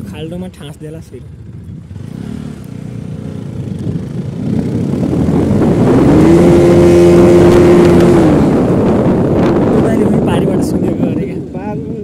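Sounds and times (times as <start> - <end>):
motorcycle engine revving: 1.2 - 11.5
wind rushing on microphone: 3.0 - 12.0.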